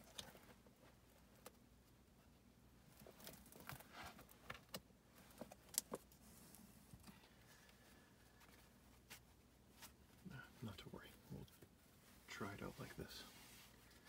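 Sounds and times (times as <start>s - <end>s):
handling rustles: 2.8s - 10.2s.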